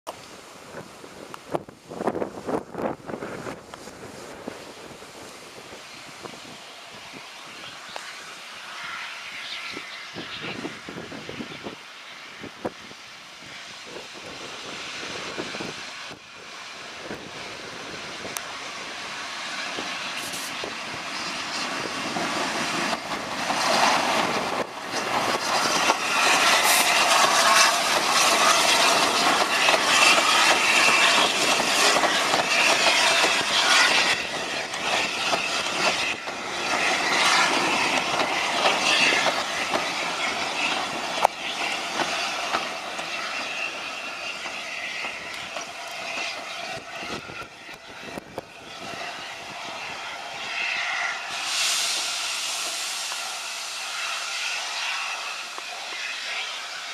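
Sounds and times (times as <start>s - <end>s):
steam train passing at speed: 0.1s - 56.9s
wheels squealing: 17.3s - 56.9s
wheels clattering on rails: 19.8s - 49.0s.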